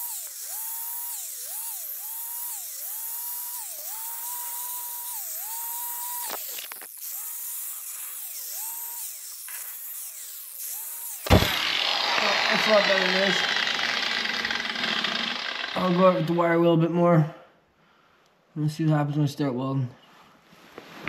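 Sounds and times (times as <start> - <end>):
handheld grinder grinding metal: 0.0 - 16.5.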